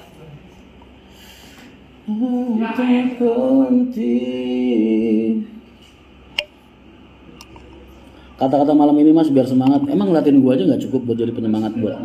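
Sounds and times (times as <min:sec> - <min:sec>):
man singing unaccompanied: 0:02.1 - 0:05.6.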